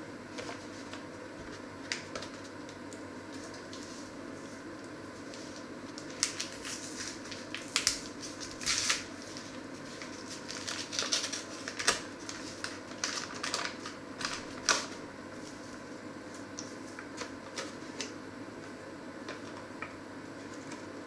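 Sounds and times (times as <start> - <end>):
paper bag crinkling: 6.0 - 15.7.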